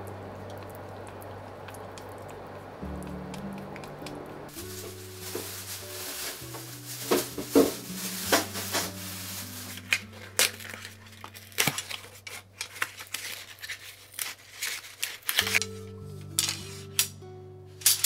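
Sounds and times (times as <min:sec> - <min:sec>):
soft background music: 0:00.0 - 0:12.8, 0:15.4 - 0:18.0
cardboard packaging rustling: 0:04.5 - 0:17.0
metal wire hangers clinking: 0:15.2 - 0:15.8, 0:16.4 - 0:17.1, 0:17.8 - 0:18.0.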